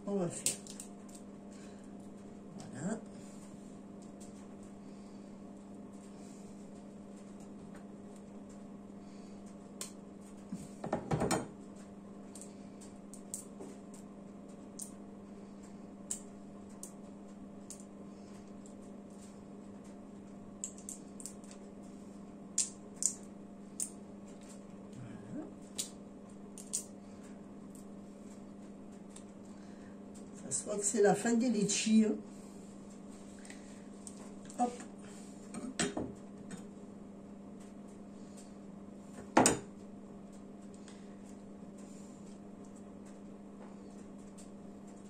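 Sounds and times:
steady low hum: 0.0 - 45.0
shells cracking while peeled: 0.4 - 2.3, 12.1 - 25.0, 25.6 - 30.2.

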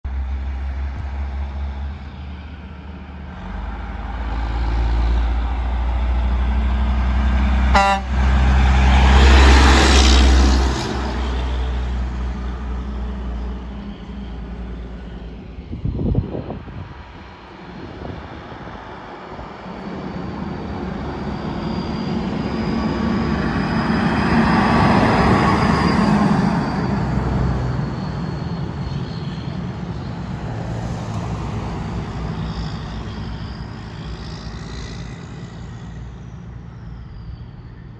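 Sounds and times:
dump trucks driving past: 0.1 - 37.9
short horn toot: 7.7 - 8.2.

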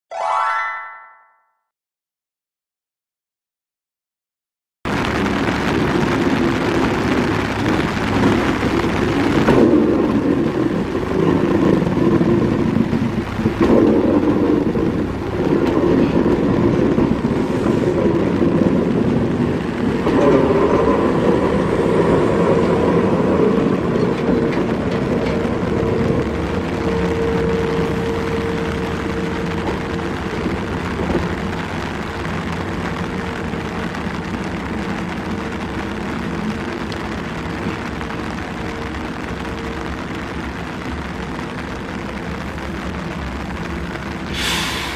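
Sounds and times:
train wheels rumbling: 4.9 - 44.9
train whine: 5.0 - 44.9.

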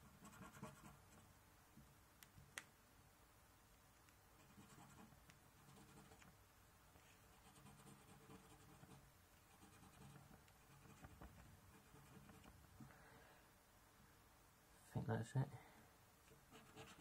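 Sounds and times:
coin scratching a scratchcard: 16.6 - 17.0.

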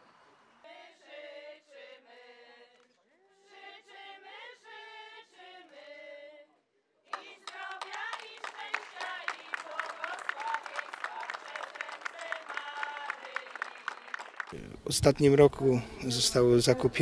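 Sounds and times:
women's choir singing: 0.6 - 6.5, 7.1 - 14.4
people clapping: 7.1 - 14.6.

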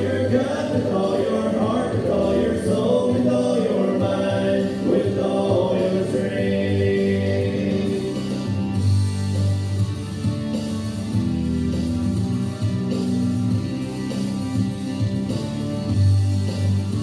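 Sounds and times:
man singing worship song: 0.0 - 8.6
instrumental backing music: 0.0 - 17.0.

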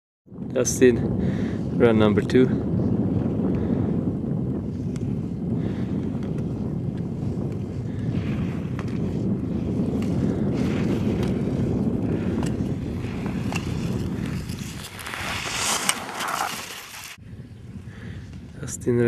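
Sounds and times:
wind buffeting microphone: 0.3 - 19.0
skis carving on hard snow: 6.2 - 17.2.

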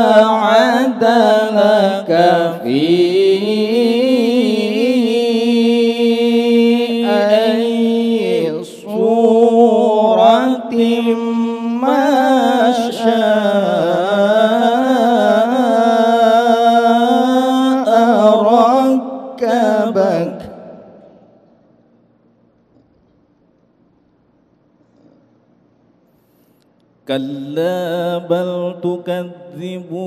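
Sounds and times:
man chanting melodically into a microphone: 0.0 - 20.7, 27.1 - 30.0.

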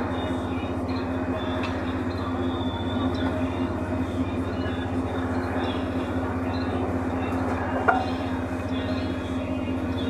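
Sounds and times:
engine droning: 0.0 - 10.0.

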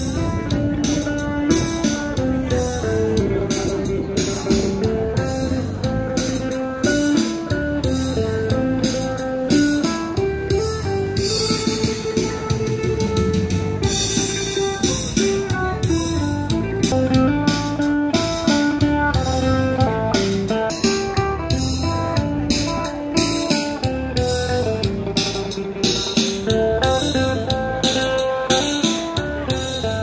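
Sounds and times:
plucked lute melody: 0.0 - 30.0.

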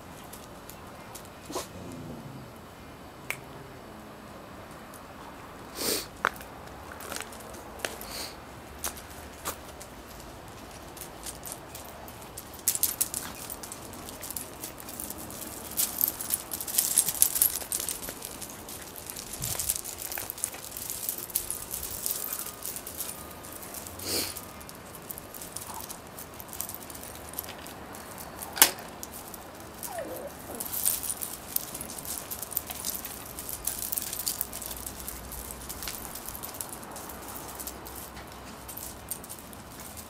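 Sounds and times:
slate chippings crunching underfoot: 8.8 - 40.0.

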